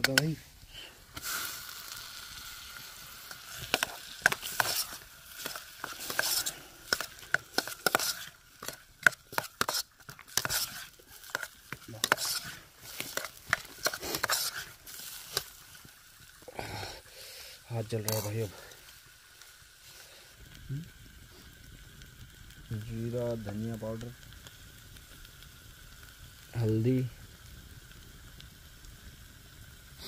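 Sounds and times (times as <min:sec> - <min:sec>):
potatoes sizzling in a pan: 0:00.0 - 0:30.0
spatula scraping metal pan: 0:03.5 - 0:15.5.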